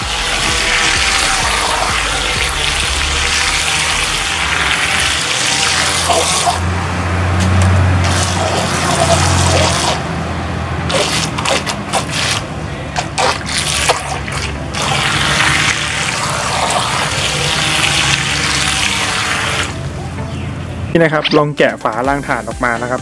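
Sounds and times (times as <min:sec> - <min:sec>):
propellers churning water: 0:00.0 - 0:20.2
electric motors humming: 0:00.0 - 0:20.8.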